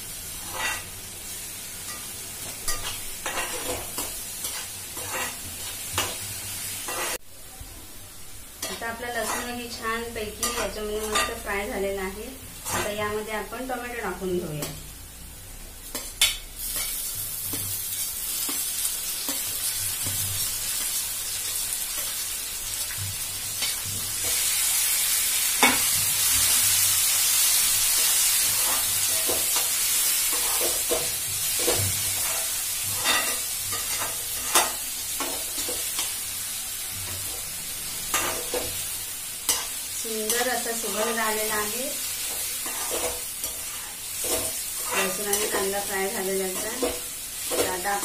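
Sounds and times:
tomato sizzling in oil: 0.0s - 48.0s
metal spoon scraping pan: 2.6s - 6.1s, 8.6s - 9.7s, 42.3s - 48.0s.

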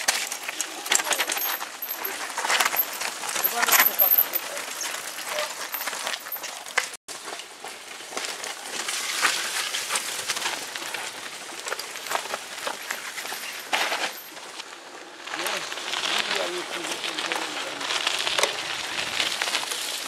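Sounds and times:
bikes rattling and clicking: 0.0s - 20.0s
tyres crunching on stones: 0.0s - 20.0s.

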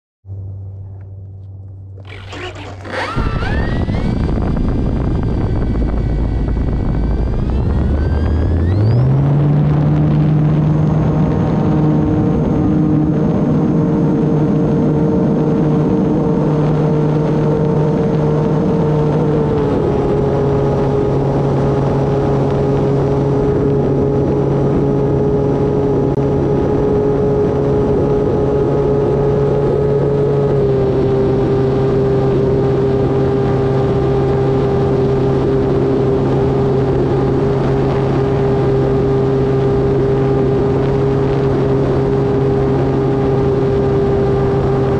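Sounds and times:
model plane motor whining: 2.0s - 10.3s.

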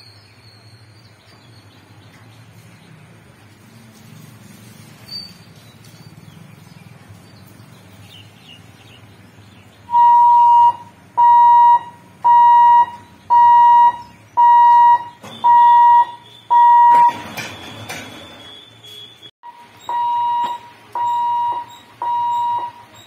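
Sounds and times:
warning buzzer beeps: 9.9s - 17.2s, 18.4s - 23.0s.

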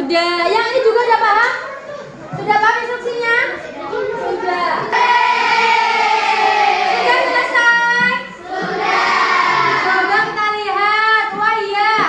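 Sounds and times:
children singing: 4.9s - 7.6s, 8.3s - 10.4s.

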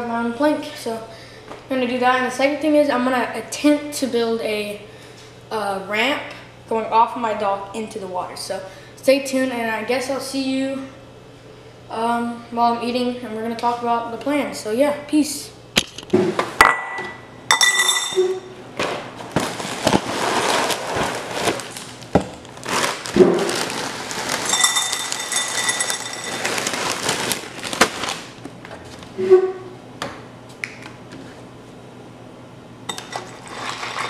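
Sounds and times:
spoon and dishes clinking: 17.5s - 18.4s, 24.5s - 26.4s.

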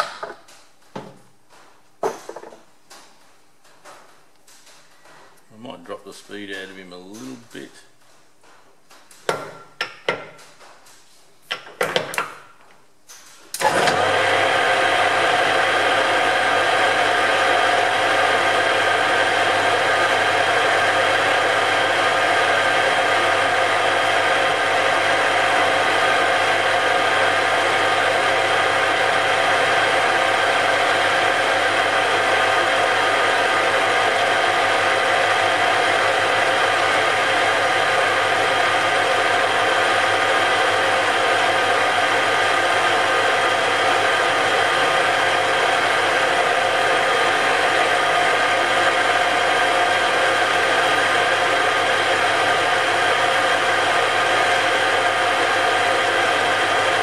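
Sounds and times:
metal lathe running: 13.6s - 57.0s.

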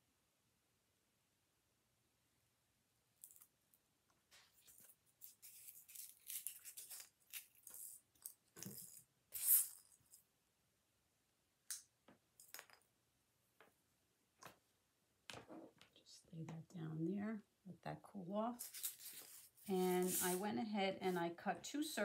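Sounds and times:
styrofoam scraping and rustling: 18.6s - 20.4s.

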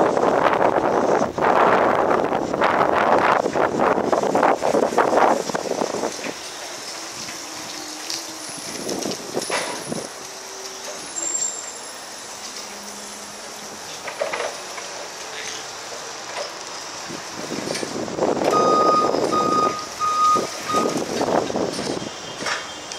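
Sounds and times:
rushing noise from moving truck: 0.0s - 22.9s
reversing alarm beeps: 18.5s - 21.0s, 21.8s - 22.9s.

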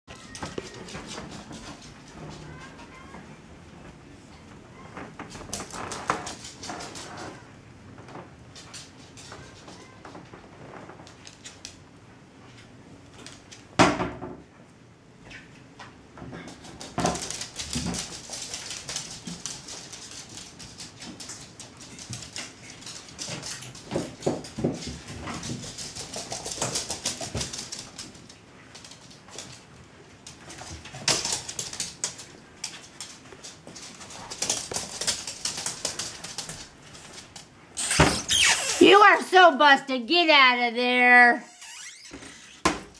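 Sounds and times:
dog claws clicking on wood floor: 16.5s - 37.5s.

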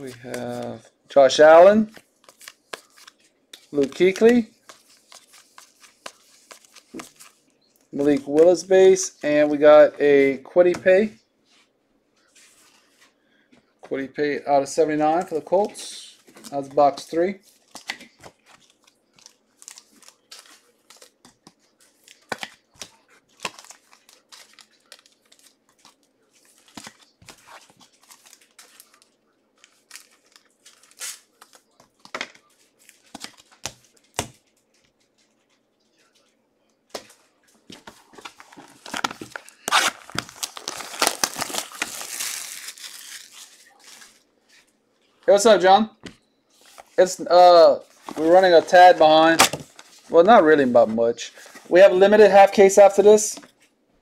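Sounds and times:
cards and packaging rustling: 0.0s - 11.1s, 14.8s - 45.8s, 46.5s - 53.8s
plastic wrapping tearing and crinkling: 38.2s - 44.2s.

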